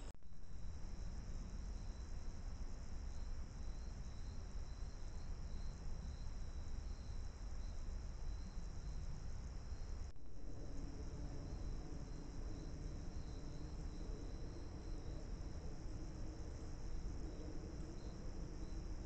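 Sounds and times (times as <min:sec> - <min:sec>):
night insects trilling: 0:00.4 - 0:19.0
low background rumble: 0:05.5 - 0:19.0.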